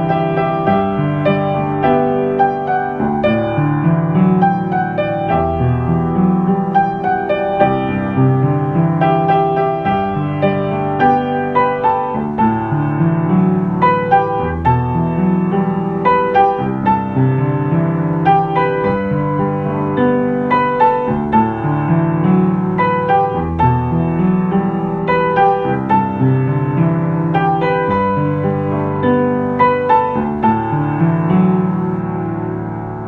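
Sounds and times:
solo piano ballad: 0.0 - 33.0.

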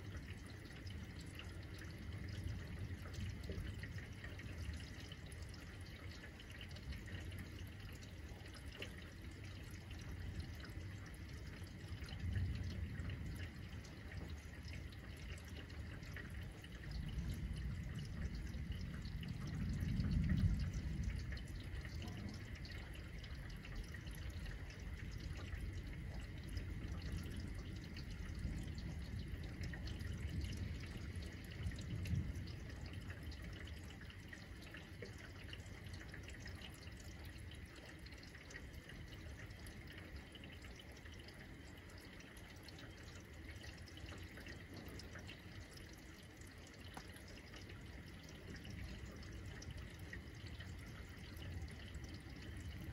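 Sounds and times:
steady rain: 0.0 - 52.9
water dripping: 0.0 - 52.9
distant thunder rumbling: 11.6 - 34.8.

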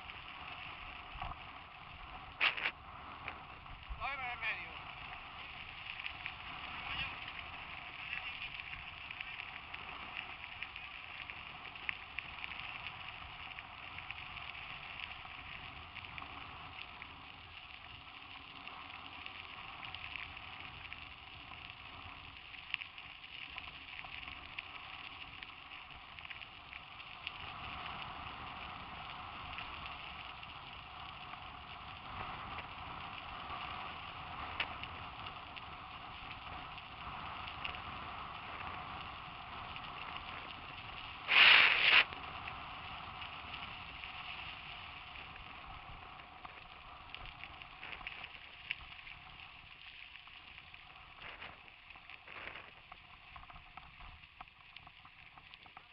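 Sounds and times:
bike tyres hissing on gravel: 0.0 - 53.4
small clicks: 2.1 - 3.8, 33.4 - 38.9, 46.4 - 55.9.

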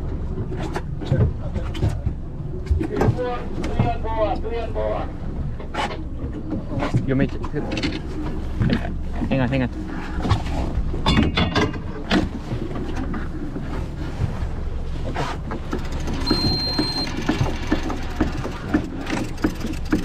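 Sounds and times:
boat engine humming: 0.0 - 20.0
water sloshing against hull: 0.0 - 20.0
gear knocking and clattering: 15.6 - 20.0
short high electronic beep: 16.2 - 17.1.

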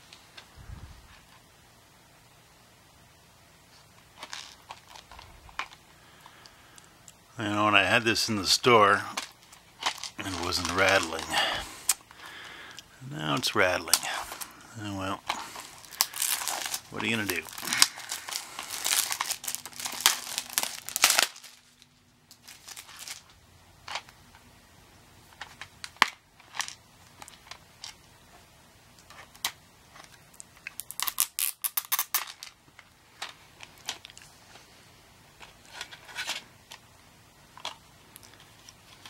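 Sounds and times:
cellophane wrap crinkling: 8.6 - 12.8, 13.4 - 24.1, 29.1 - 34.3.

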